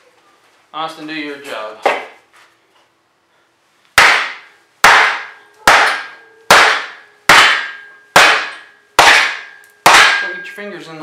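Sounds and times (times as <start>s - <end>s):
sledgehammer knocking on wood: 4.0s - 10.3s.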